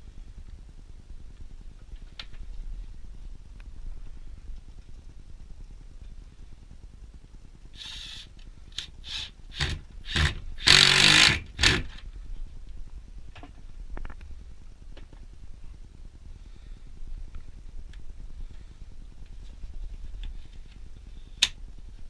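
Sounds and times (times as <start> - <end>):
cordless drill driving screw: 7.8 - 12.0.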